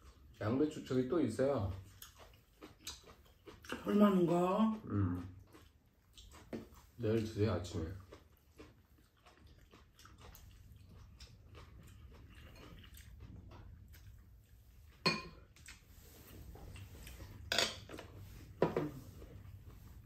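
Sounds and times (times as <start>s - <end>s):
chopsticks tapping ceramic bowls: 15.0s - 15.4s, 17.5s - 18.0s.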